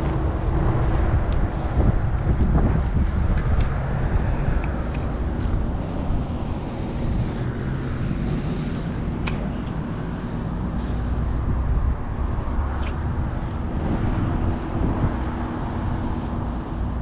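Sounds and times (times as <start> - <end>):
motor running rumble: 0.0 - 17.0
wind on microphone: 0.0 - 17.0
sharp click: 9.2 - 9.8.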